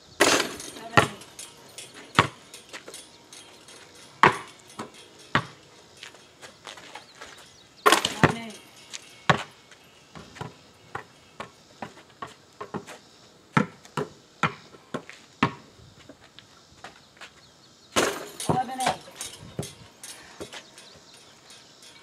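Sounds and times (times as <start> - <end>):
basketball dribbled on asphalt: 0.2 - 1.4, 2.0 - 3.0, 4.2 - 16.2, 18.0 - 19.0
basketball clanging hoop: 0.2 - 12.9, 18.0 - 22.0.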